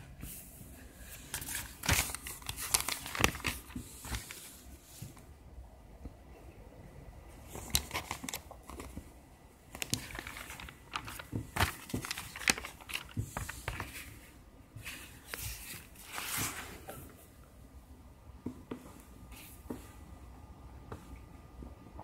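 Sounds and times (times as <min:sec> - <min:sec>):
paper rustling and crinkling: 0:01.0 - 0:05.2, 0:07.5 - 0:09.1, 0:09.7 - 0:17.2
page turn swish: 0:14.8 - 0:17.0.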